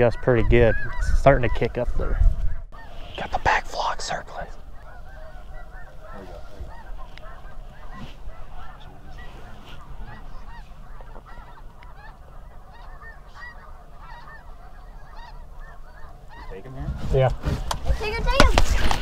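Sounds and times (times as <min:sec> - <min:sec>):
geese honking: 0:00.0 - 0:19.0
wind rumble on microphone: 0:00.3 - 0:03.2.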